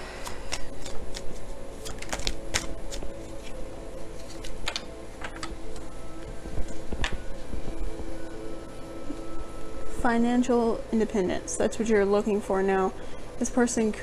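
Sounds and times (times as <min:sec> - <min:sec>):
cards clicking and snapping: 0:00.1 - 0:03.6, 0:04.2 - 0:05.8.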